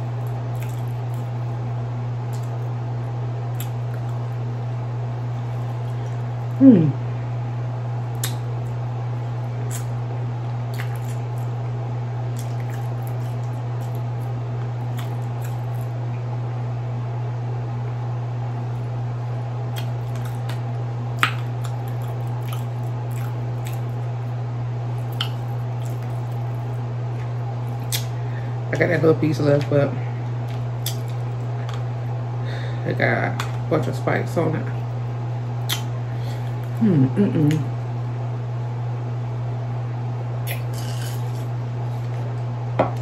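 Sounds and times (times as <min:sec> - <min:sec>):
wet chewing and lip smacks: 0:00.0 - 0:01.5, 0:02.3 - 0:02.7, 0:03.5 - 0:04.5, 0:05.2 - 0:06.6, 0:08.1 - 0:08.5, 0:09.6 - 0:11.6, 0:12.3 - 0:15.9, 0:19.6 - 0:24.1, 0:25.0 - 0:28.2, 0:30.4 - 0:31.9, 0:35.6 - 0:36.8, 0:40.4 - 0:42.4
steady low hum: 0:00.0 - 0:43.0.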